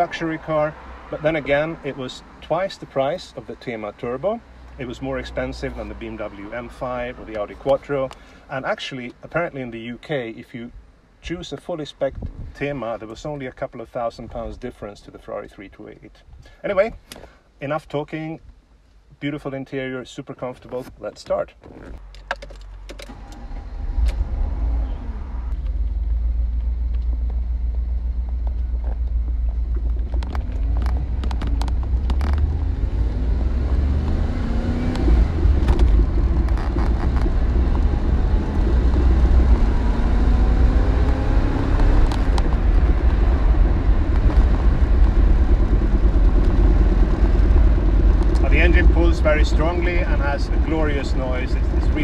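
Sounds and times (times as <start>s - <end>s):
road and wind rumble: 0.0s - 19.2s, 20.4s - 52.0s
car engine accelerating: 23.0s - 52.0s.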